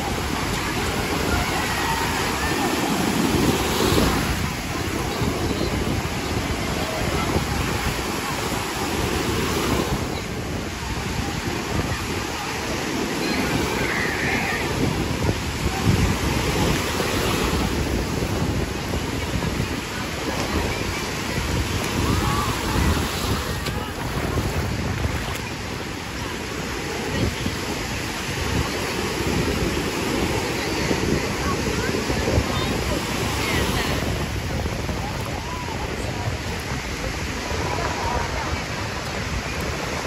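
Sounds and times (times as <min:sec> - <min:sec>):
crowd voices: 0:00.0 - 0:40.0
small waves breaking on shore: 0:00.0 - 0:40.0
wind buffeting microphone: 0:00.0 - 0:40.0.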